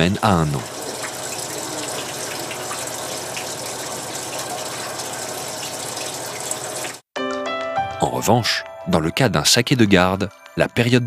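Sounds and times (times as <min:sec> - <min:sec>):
liquid pouring and splashing: 0:00.2 - 0:07.1.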